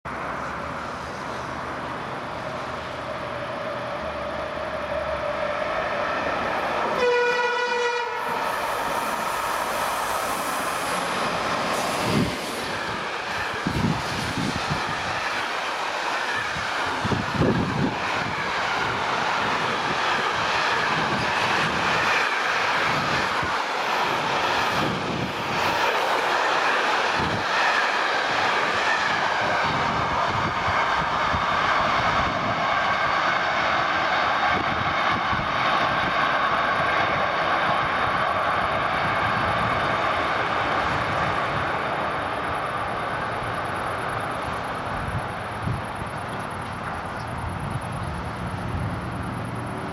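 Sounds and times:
freight train passing: 0.1s - 49.9s
locomotive horn blast: 6.9s - 8.4s.

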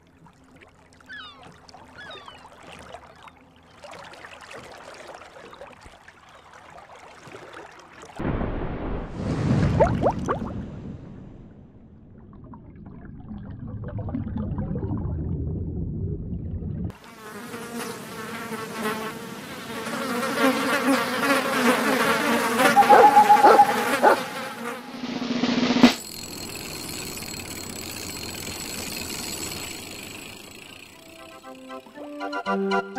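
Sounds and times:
low rumbling noise: 10.3s - 16.9s
cartoon insect buzz: 20.0s - 24.8s.

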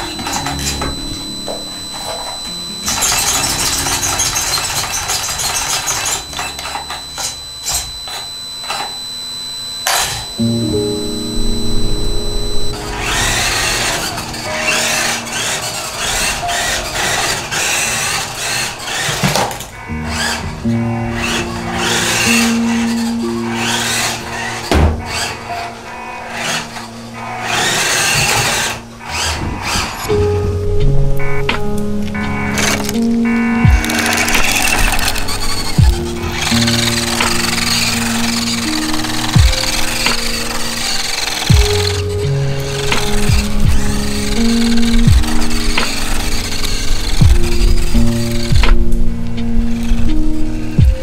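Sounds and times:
high-pitched whine: 0.0s - 51.0s
rc car motor and gears whirring: 1.8s - 10.4s, 12.9s - 30.2s, 33.8s - 48.8s
loud thud: 24.7s - 25.2s.

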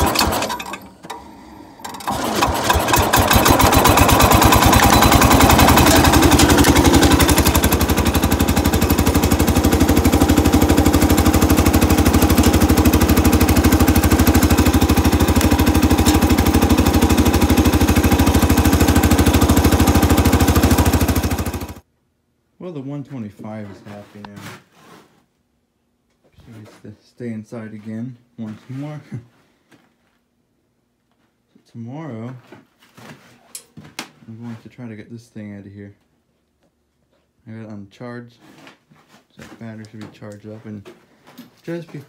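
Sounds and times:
tractor engine puttering: 0.0s - 21.8s.

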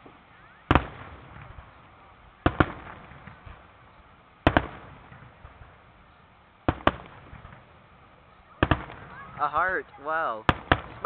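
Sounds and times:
firework shells bursting: 6.6s - 7.8s, 10.4s - 11.0s.

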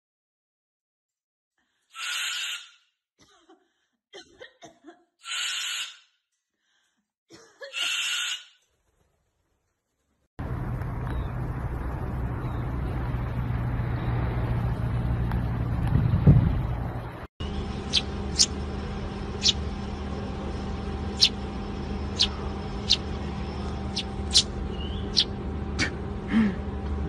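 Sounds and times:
cockatoo harsh calls: 1.9s - 2.8s, 5.2s - 6.1s, 7.7s - 8.6s
rushing noise with low hum: 10.4s - 27.0s.

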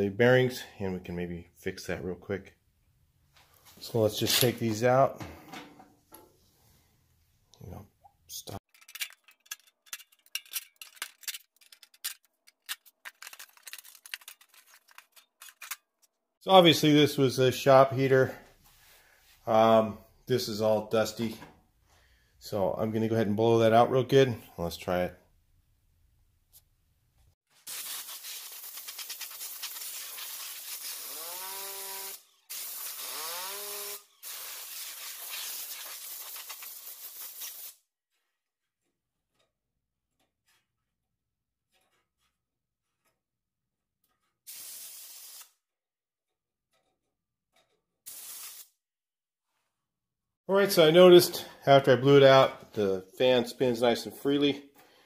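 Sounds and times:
metallic clicks and rattles: 8.7s - 16.1s
compressed air hissing: 27.6s - 37.8s, 44.5s - 45.5s, 48.1s - 48.7s
drill motor whine: 31.0s - 32.2s, 32.9s - 34.1s.

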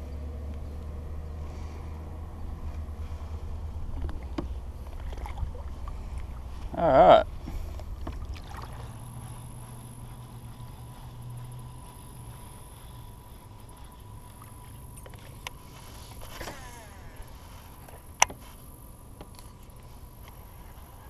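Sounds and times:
faint steady hum: 0.0s - 21.0s
fishing reel whirring: 10.9s - 18.9s.

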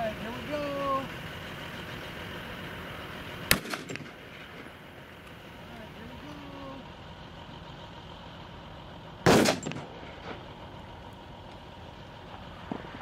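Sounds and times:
diesel engine hum: 0.0s - 13.0s
pistol shot with echo: 3.5s - 4.2s, 9.2s - 9.9s.

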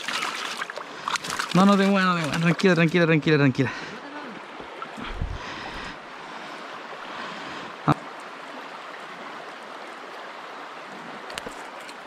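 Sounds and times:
stream running over pebbles: 0.0s - 12.0s.

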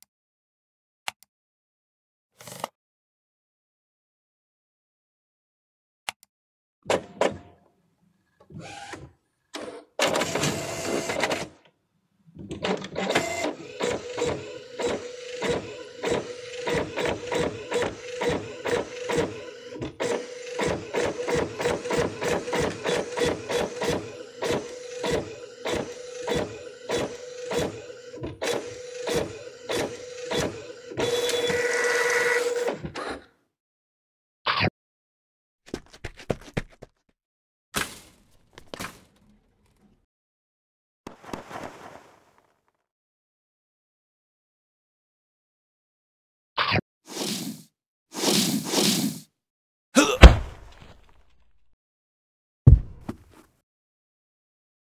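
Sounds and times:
printer printing: 10.0s - 11.5s, 12.6s - 32.8s.

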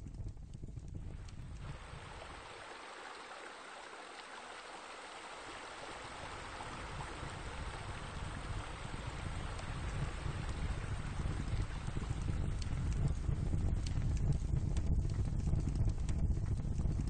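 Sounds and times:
running splashing water: 1.2s - 12.9s
low rumble: 6.1s - 17.0s.

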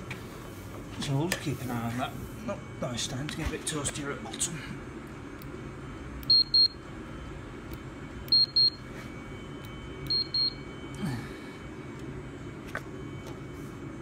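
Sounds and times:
heater low hum: 0.0s - 14.0s
thermometer beeping: 6.2s - 6.9s, 7.6s - 11.0s.

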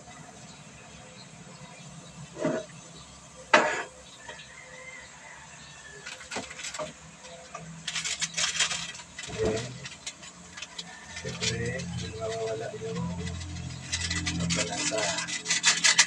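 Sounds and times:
spatula scraping metal pan: 7.8s - 16.0s.

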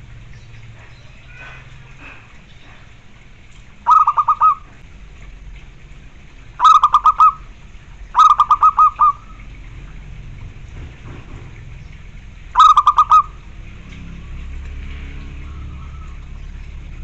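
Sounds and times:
dove cooing: 3.8s - 4.8s, 6.6s - 9.6s, 12.5s - 13.5s.

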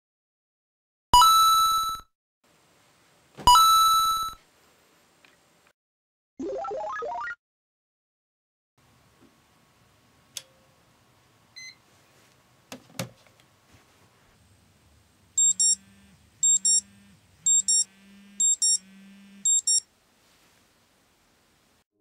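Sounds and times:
phone alarm double beeps: 1.2s - 2.1s, 3.5s - 4.4s, 15.4s - 19.8s
low buzz: 15.1s - 19.7s.

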